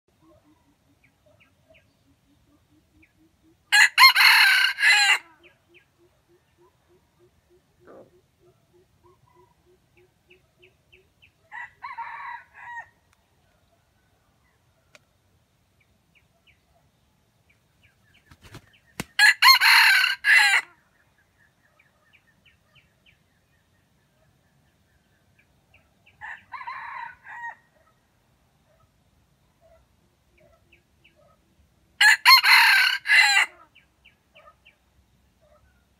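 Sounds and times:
rooster crowing: 0:03.7 - 0:05.4, 0:11.5 - 0:13.0, 0:19.2 - 0:20.7, 0:26.2 - 0:27.7, 0:32.0 - 0:33.6.

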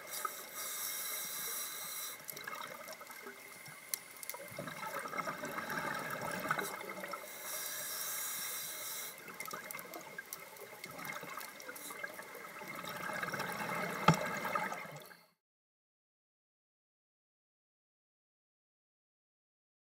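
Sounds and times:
bright hiss: 0:00.0 - 0:02.2, 0:07.2 - 0:09.2.

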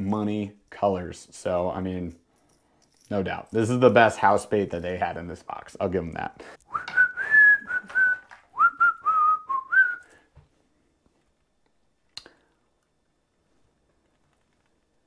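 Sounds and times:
person whistling a tune: 0:06.7 - 0:10.2.

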